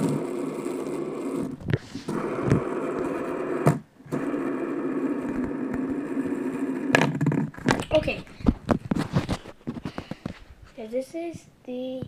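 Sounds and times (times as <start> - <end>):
fidget spinner whirring: 0.0 - 8.4.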